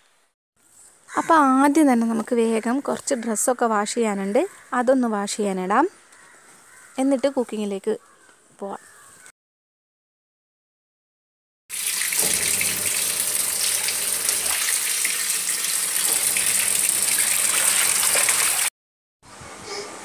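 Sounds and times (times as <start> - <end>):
water gushing into washing tub: 11.7 - 18.7.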